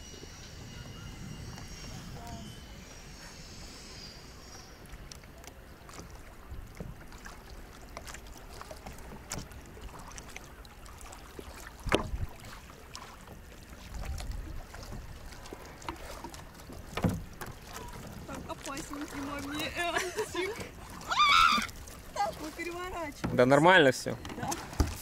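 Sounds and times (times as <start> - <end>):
water splashing around kayak: 0.0 - 25.0
small knocks and thump: 11.8 - 12.2, 16.9 - 17.6, 24.2 - 25.0.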